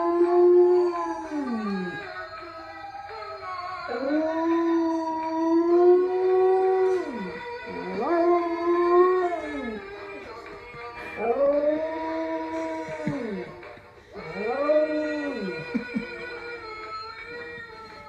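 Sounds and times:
dog howling: 0.0 - 10.4, 11.0 - 13.6, 14.2 - 16.6.

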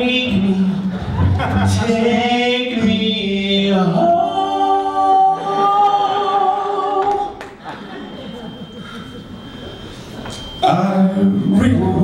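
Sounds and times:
men singing in harmony: 0.0 - 7.3, 10.6 - 12.0.

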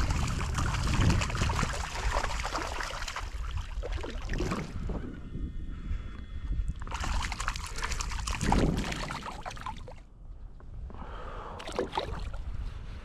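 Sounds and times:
fish splashing in water: 0.0 - 4.7, 6.9 - 10.0.

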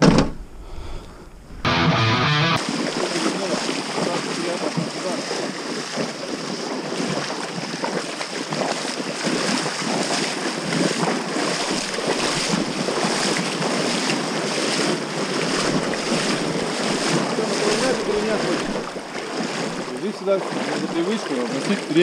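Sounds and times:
river rushing over stones: 2.6 - 22.0.

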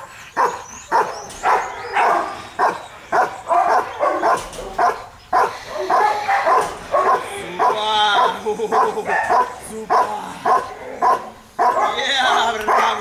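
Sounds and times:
dog barking: 0.0 - 13.0.

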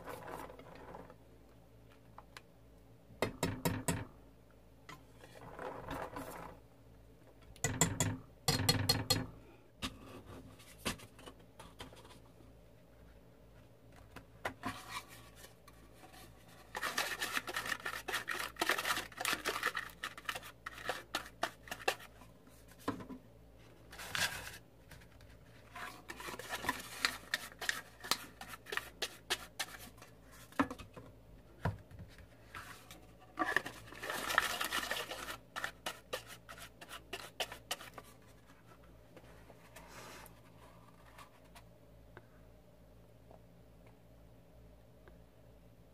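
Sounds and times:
pastry brush scratching paper cups: 25.7 - 30.5, 32.6 - 38.6.

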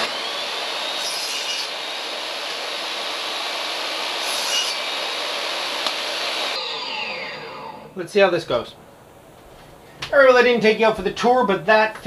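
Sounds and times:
table saw cutting wood: 0.0 - 8.0.

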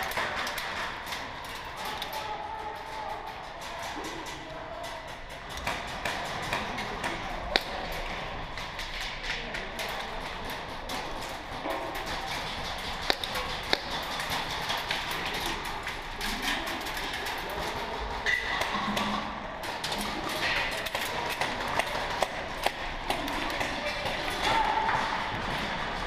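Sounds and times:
pellets striking surfaces: 5.2 - 26.0.

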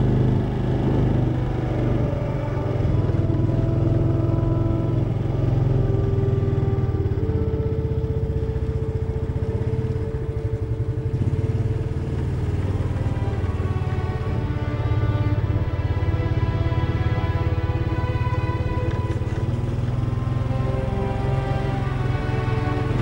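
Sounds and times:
motorcycle engine drone: 0.0 - 23.0.

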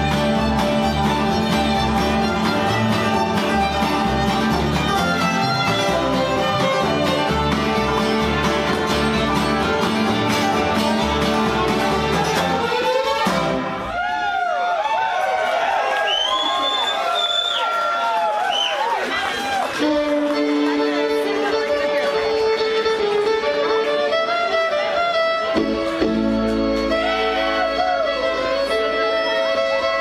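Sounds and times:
bluegrass band playing: 0.0 - 14.2, 19.5 - 30.0
fiddle: 0.0 - 14.7, 19.4 - 30.0.

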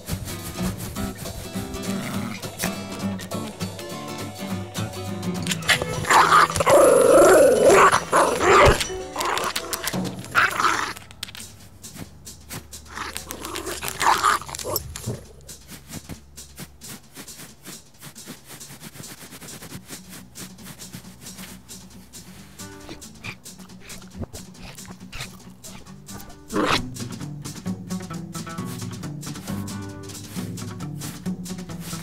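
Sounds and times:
light background music: 0.0 - 32.0
puppy vocalizing: 1.0 - 4.3, 5.4 - 11.1, 12.9 - 15.5, 22.6 - 27.2.

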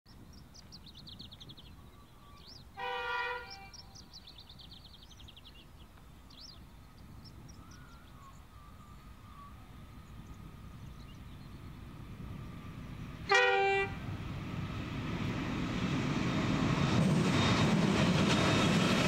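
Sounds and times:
distant locomotive horn: 2.8 - 4.1, 13.2 - 14.3.

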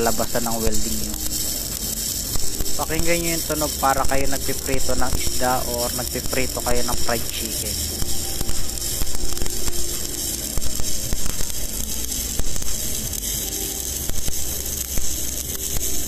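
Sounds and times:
welding arc crackling and sizzling: 0.0 - 16.0.

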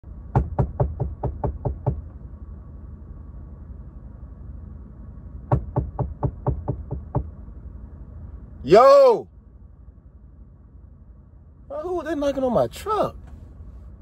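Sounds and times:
steady low hum: 0.0 - 14.0
knocking on truck cab: 0.3 - 2.1, 5.5 - 7.3.

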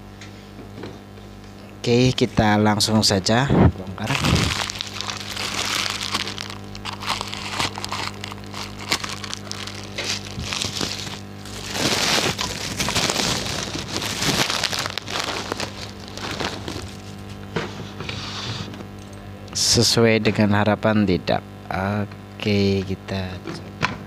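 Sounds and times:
plastic packaging crinkling and tearing: 4.0 - 17.5.

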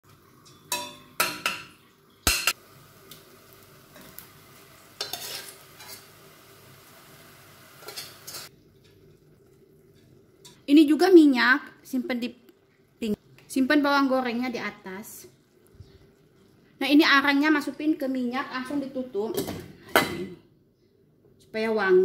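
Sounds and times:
metal spoon clanking on pot: 0.4 - 2.6, 5.0 - 6.0, 7.8 - 8.5
spoon scraping pot: 5.0 - 6.2, 7.8 - 8.5.

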